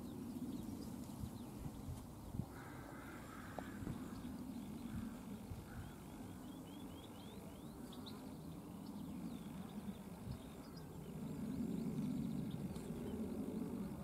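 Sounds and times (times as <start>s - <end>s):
jet airliner rumble overhead: 0.0s - 14.0s
bird chirping: 3.8s - 13.2s.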